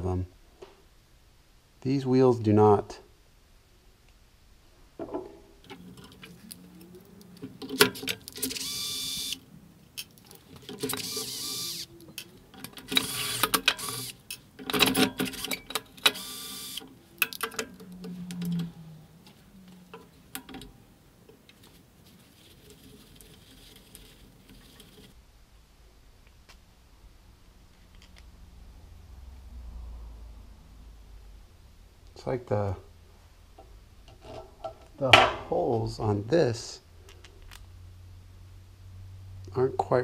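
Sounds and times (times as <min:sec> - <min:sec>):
cordless driver whining: 0:07.6 - 0:09.4, 0:10.8 - 0:14.2, 0:15.2 - 0:17.0
metal parts clicking and knocking: 0:12.1 - 0:16.3, 0:17.2 - 0:18.7.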